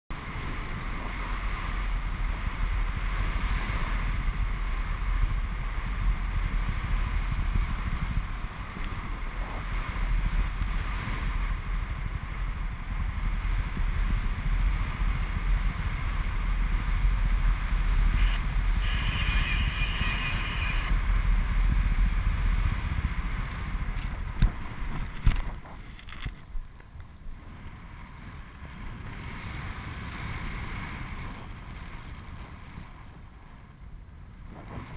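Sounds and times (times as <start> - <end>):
wind buffeting microphone: 0.1 - 34.9
brief higher tone: 18.1 - 20.9.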